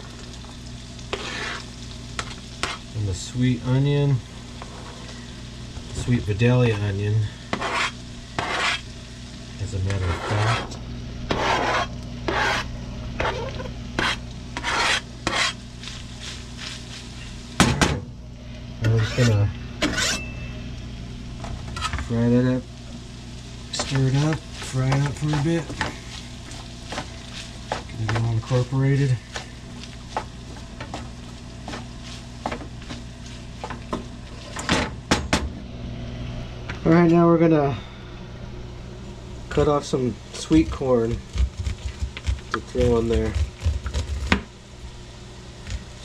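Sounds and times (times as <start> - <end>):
food sizzling: 0.0 - 36.4, 38.7 - 46.0
steady low hum: 0.0 - 46.0
knife scraping cutting board: 1.1 - 2.8, 7.5 - 8.9, 9.9 - 15.6, 18.8 - 20.2, 21.8 - 22.0.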